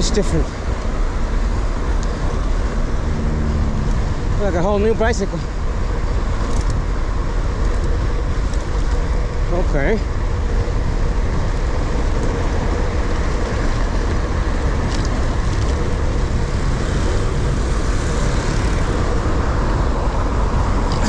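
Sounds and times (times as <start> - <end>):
road noise rumble: 0.0 - 21.0.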